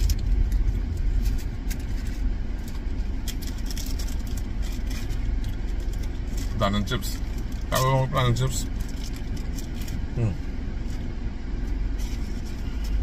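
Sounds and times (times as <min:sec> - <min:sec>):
plastic bag crinkling: 0:00.0 - 0:10.1
low rumble inside a car: 0:00.0 - 0:13.0.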